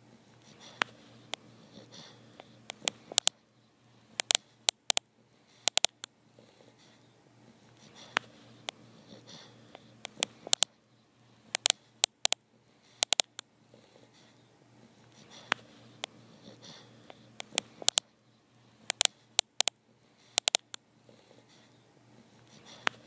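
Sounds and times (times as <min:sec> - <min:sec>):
dog snoring: 0:00.4 - 0:02.6, 0:06.4 - 0:07.0, 0:07.8 - 0:09.9, 0:13.7 - 0:14.4, 0:15.2 - 0:17.6, 0:21.1 - 0:21.7
sharp clicks: 0:02.4 - 0:03.4, 0:04.2 - 0:05.0, 0:05.7 - 0:06.1, 0:10.0 - 0:10.7, 0:11.5 - 0:12.4, 0:13.0 - 0:13.5, 0:17.1 - 0:18.1, 0:18.9 - 0:20.8.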